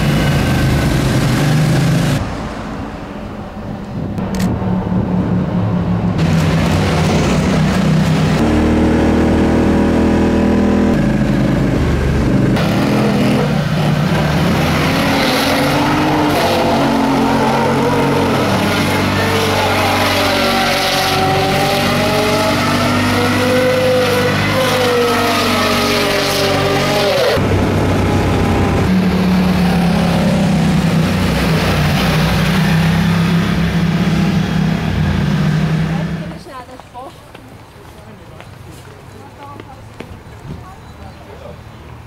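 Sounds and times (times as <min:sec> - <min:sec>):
quad bike engines revving: 0:00.0 - 0:02.2, 0:06.2 - 0:36.6.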